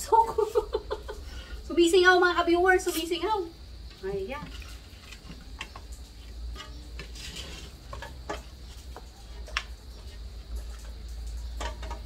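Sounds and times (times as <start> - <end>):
knocks and scrapes against metal basin: 3.9 - 12.0.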